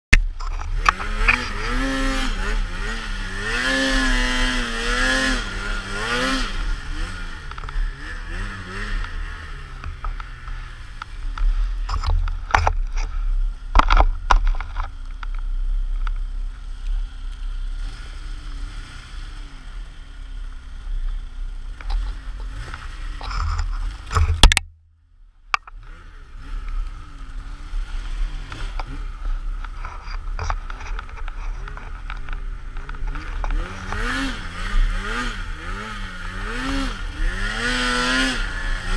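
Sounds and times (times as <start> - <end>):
knocks and scrapes: 0.2 - 2.4, 8.7 - 16.6, 21.8 - 24.7, 27.8 - 35.3
snowmobile engine revving: 0.4 - 12.6, 16.7 - 20.4, 25.8 - 38.9.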